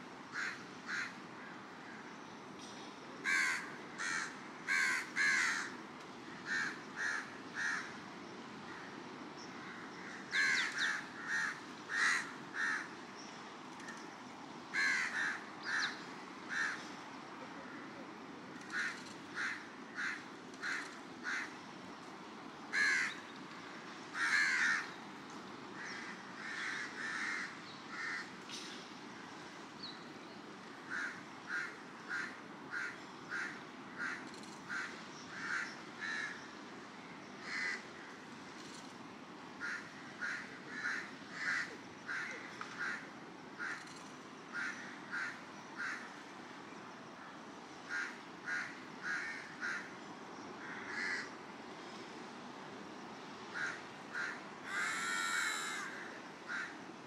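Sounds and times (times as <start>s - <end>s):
crows cawing: 0.3s - 2.0s, 3.2s - 5.8s, 6.4s - 8.0s, 9.6s - 13.0s, 14.7s - 17.0s, 18.6s - 21.6s, 22.7s - 23.2s, 24.1s - 24.9s, 25.8s - 28.3s, 30.9s - 36.4s, 37.4s - 38.1s, 39.6s - 46.3s, 47.8s - 49.9s, 50.6s - 51.4s, 53.5s - 56.8s.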